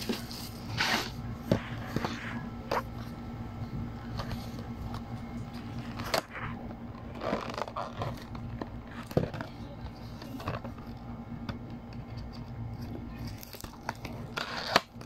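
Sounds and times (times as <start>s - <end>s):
cardboard rustling and scraping: 0.0s - 3.2s, 3.9s - 11.0s.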